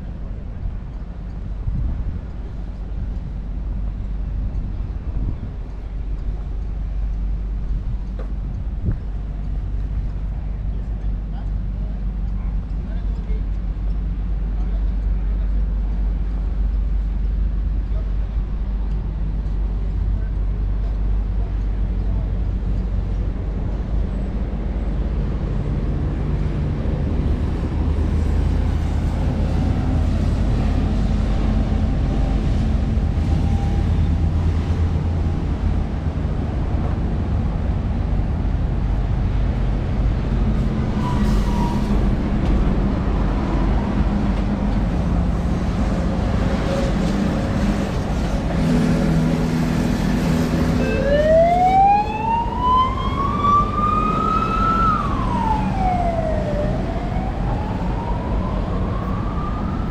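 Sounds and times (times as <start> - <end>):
road traffic passing: 0.0 - 59.9
siren wailing: 50.7 - 59.9.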